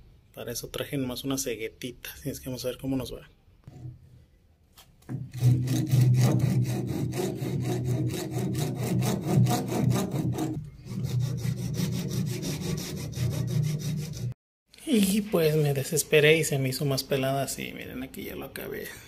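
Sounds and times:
hacksaw blade sawing wood: 5.1s - 14.4s.

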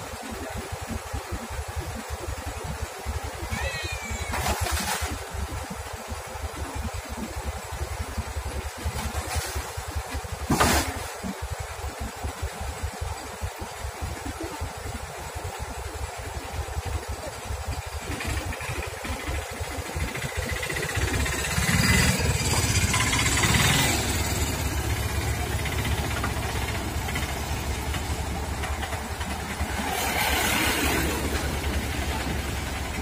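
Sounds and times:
excavator diesel engine running: 0.0s - 33.0s.

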